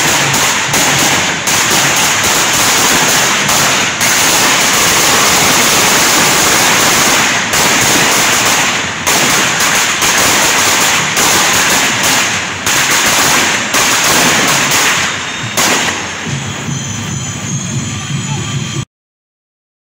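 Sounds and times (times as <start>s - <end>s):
firecrackers going off: 0.0s - 18.8s.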